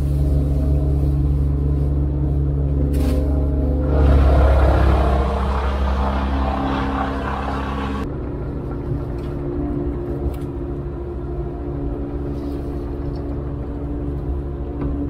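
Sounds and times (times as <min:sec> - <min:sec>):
diesel engine running: 0:00.0 - 0:15.0
machine rushing under load: 0:03.8 - 0:08.1.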